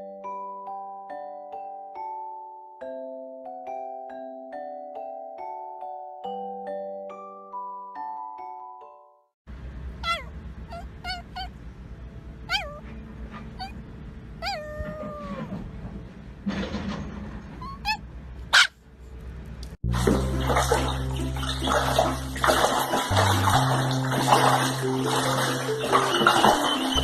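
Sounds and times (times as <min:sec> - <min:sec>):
small dog whining: 0:10.0 - 0:11.6, 0:12.4 - 0:13.8, 0:14.4 - 0:15.6, 0:17.6 - 0:18.7
music with low notes: 0:19.8 - 0:27.0
water splashing: 0:19.8 - 0:27.0.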